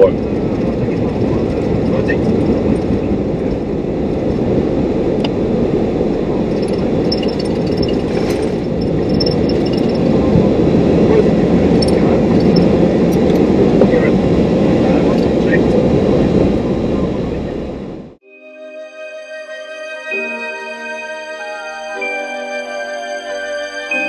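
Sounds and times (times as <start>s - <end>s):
wheels rolling on runway: 0.0s - 18.1s
jet engines rumbling: 0.0s - 18.2s.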